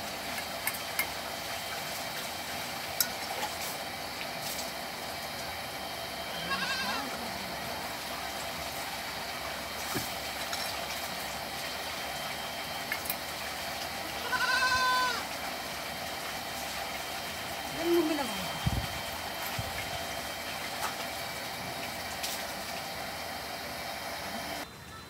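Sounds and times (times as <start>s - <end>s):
animal bleating: 6.3s - 7.4s, 14.2s - 15.3s.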